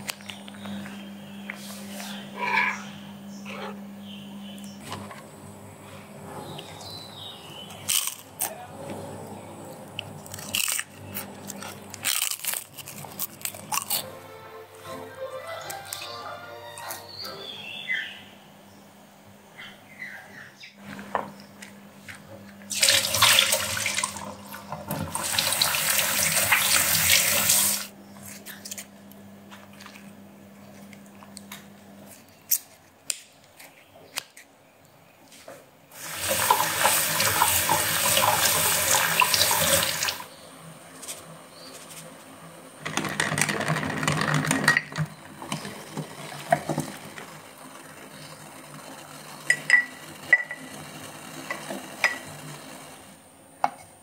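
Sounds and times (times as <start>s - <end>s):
water running from a tap: 22.7s - 27.9s, 36.0s - 40.3s.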